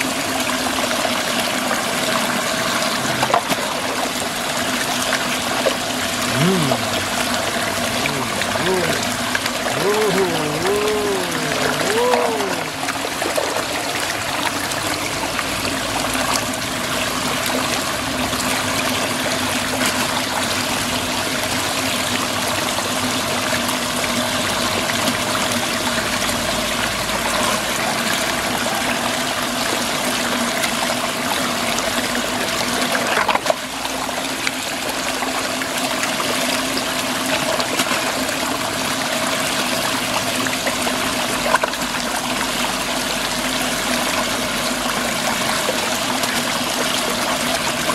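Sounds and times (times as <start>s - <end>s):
water swirling and draining: 0.0s - 21.0s.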